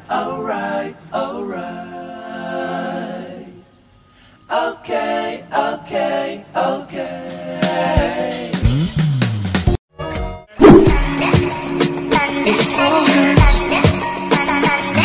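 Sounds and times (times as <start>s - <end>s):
unaccompanied vocal singing: 0.0s - 3.7s, 4.5s - 8.6s, 12.1s - 15.0s.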